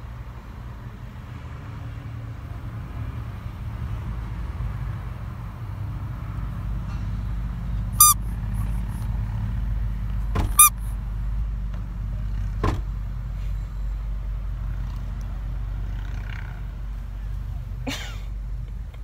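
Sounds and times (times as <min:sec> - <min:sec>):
rubber toy squeaking: 0:08.0 - 0:08.9, 0:10.5 - 0:10.9.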